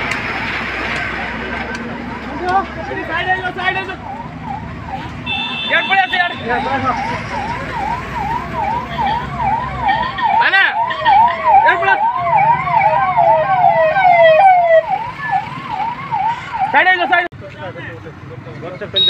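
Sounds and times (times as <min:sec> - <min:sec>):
siren yelping: 0:03.1 - 0:17.3
falling siren sweep: 0:03.3 - 0:05.3, 0:06.4 - 0:17.2.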